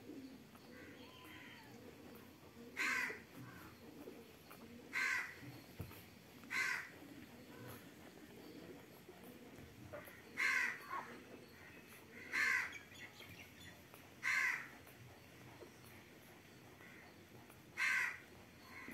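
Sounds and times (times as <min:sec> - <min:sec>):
crow cawing: 0:02.8 - 0:03.2, 0:04.9 - 0:05.4, 0:06.5 - 0:06.9, 0:10.3 - 0:11.1, 0:12.2 - 0:12.7, 0:14.2 - 0:14.7, 0:17.8 - 0:18.9.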